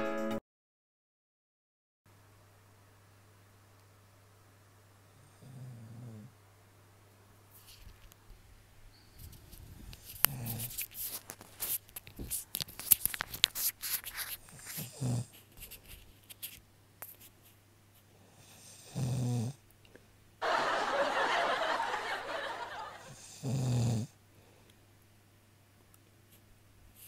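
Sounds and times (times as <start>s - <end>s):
man snoring: 5.2s - 6.3s, 14.8s - 15.3s, 18.3s - 19.6s, 23.0s - 24.2s.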